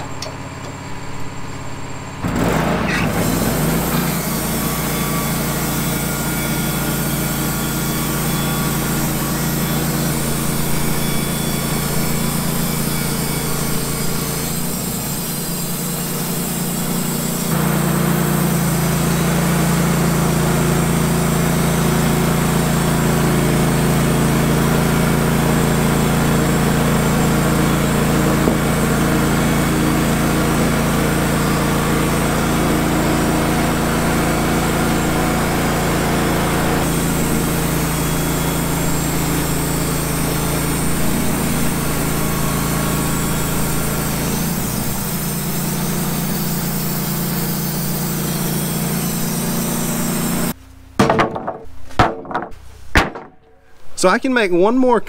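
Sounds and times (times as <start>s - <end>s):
sawmill engine running: 0.0s - 55.0s
broad hiss of band blade: 8.8s - 17.5s, 36.9s - 50.6s.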